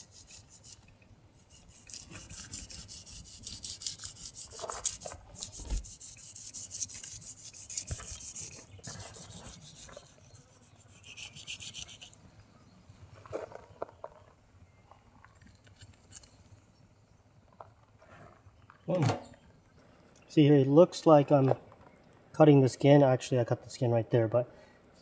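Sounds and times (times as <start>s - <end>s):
knife scraping fish scales: 0.0s - 12.2s.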